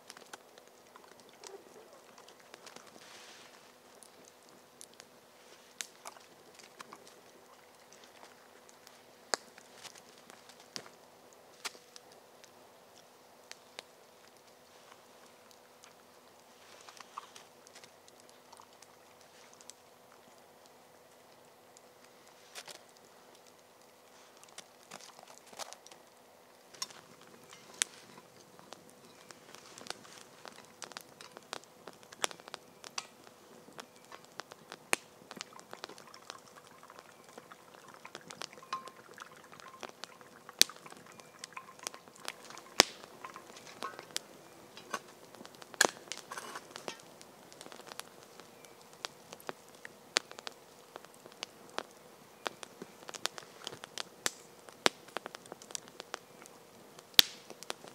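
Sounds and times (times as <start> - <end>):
campfire crackling and popping: 0.0 - 57.9.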